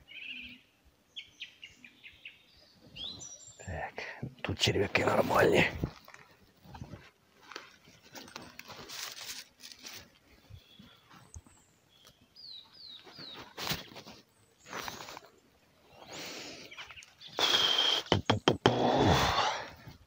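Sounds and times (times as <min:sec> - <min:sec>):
small bird chirping: 0:00.0 - 0:03.7, 0:10.4 - 0:14.9
rustling and handling noise: 0:05.6 - 0:12.2, 0:12.9 - 0:15.4.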